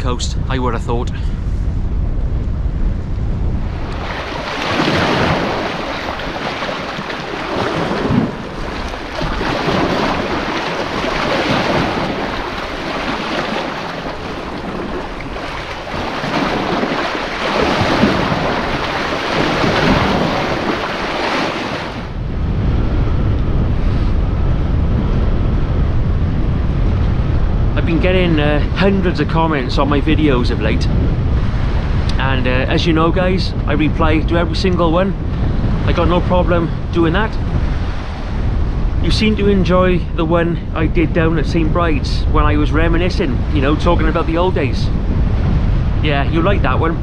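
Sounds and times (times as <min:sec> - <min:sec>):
wind rumble on microphone: 0:00.0 - 0:47.0
waves washing over rocks: 0:03.7 - 0:22.2.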